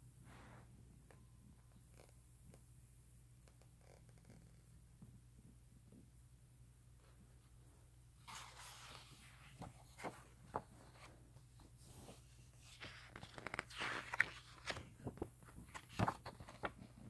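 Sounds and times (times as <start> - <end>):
paper pages rustling: 8.2 - 17.0.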